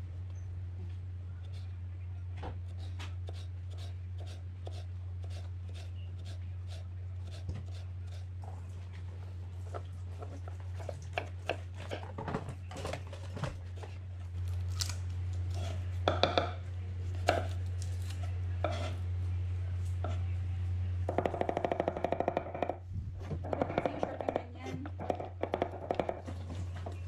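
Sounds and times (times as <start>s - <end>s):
steady low hum: 0.0s - 27.0s
knife chopping on a board: 18.7s - 19.0s, 23.4s - 26.2s.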